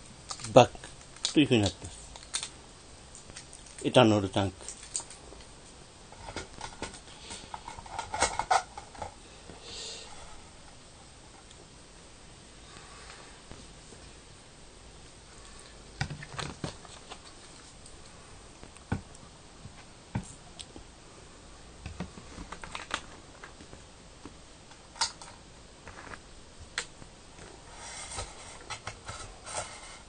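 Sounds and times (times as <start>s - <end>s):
rustling and clatter: 6.1s - 9.2s, 27.4s - 30.0s.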